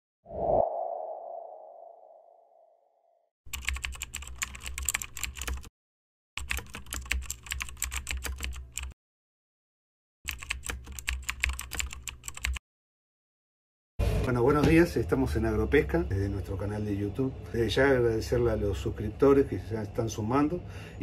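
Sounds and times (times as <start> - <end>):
keyboard typing clicks: 3.5 - 5.7, 6.4 - 8.9, 10.3 - 12.6.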